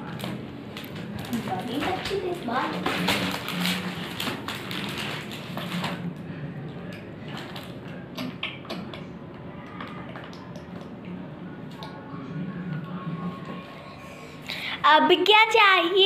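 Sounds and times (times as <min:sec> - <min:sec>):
paper rustling: 0:00.2 - 0:06.1.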